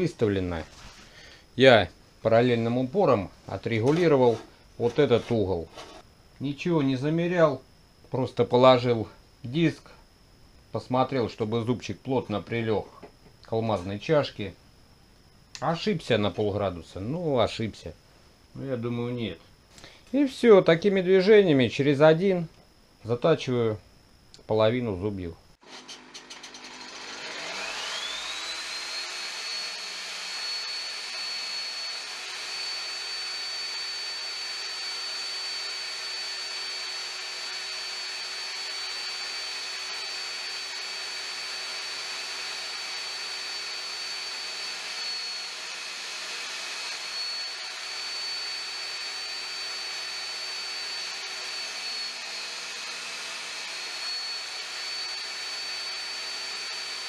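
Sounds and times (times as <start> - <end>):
table saw motor whine: 25.6 - 57.0.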